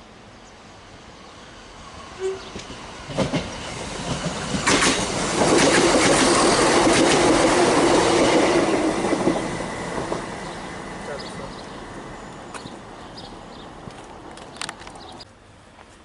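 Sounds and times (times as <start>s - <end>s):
low hum of train running gear: 0.1s - 16.0s
train wheels clattering over rail joints: 2.5s - 10.3s.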